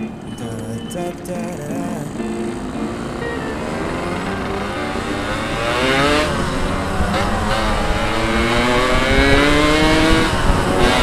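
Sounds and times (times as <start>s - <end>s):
motorcycle engine accelerating: 2.5s - 11.0s.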